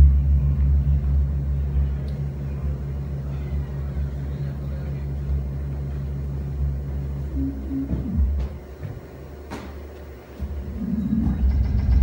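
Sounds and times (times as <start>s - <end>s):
modular synthesizer low drone: 0.0s - 12.0s
higher held synth tone: 6.6s - 8.8s.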